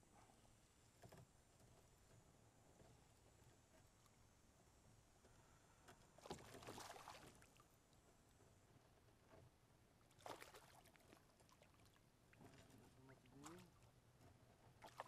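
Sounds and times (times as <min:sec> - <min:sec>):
fish splashing in water: 0:06.2 - 0:07.6, 0:10.2 - 0:12.7, 0:14.8 - 0:15.0.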